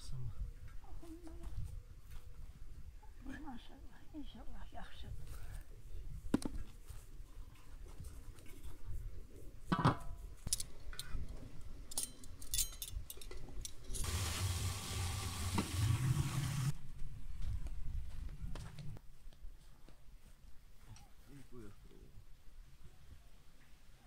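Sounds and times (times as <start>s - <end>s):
pot hissing on stove: 14.0s - 16.7s.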